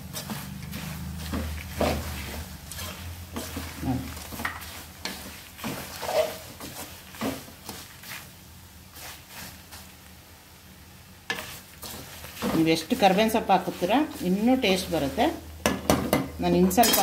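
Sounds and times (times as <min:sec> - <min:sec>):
metal spoon scraping a metal pan: 0:00.1 - 0:07.8, 0:16.4 - 0:17.0.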